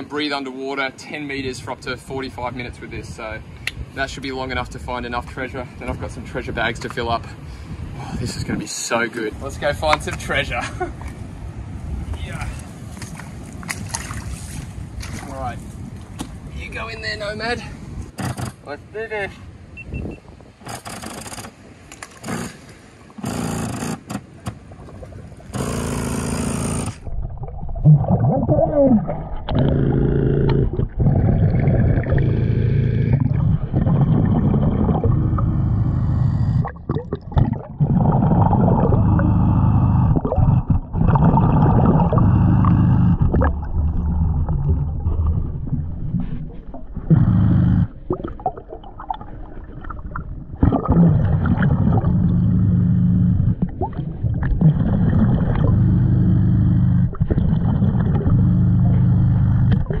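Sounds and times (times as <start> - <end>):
water splashing: 12.4 - 16.4, 24.2 - 56.2, 56.8 - 60.0
underwater breathing bubbles: 27.3 - 60.0.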